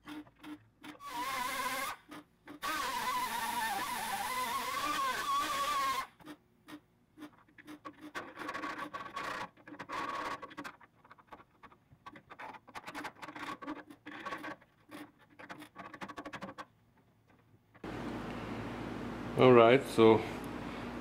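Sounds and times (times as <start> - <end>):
hand tool scraping metal: 0.0 - 11.4, 12.1 - 16.7.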